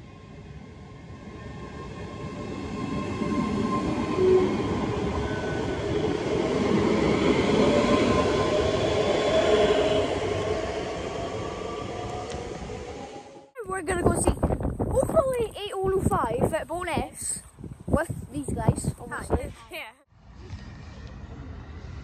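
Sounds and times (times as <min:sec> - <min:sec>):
electric train accelerating: 0:00.0 - 0:13.6.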